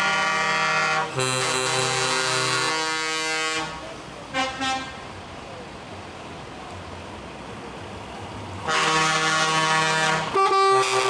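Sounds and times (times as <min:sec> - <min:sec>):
musical horn playing notes: 0:00.0 - 0:03.8, 0:08.7 - 0:11.0.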